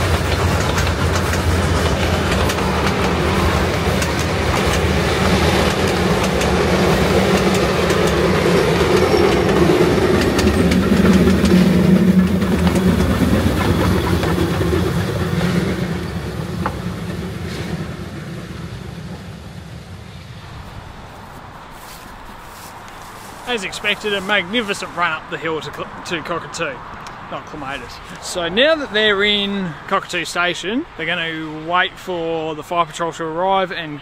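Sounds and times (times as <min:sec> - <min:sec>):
steam train working hard: 0:00.0 - 0:20.3.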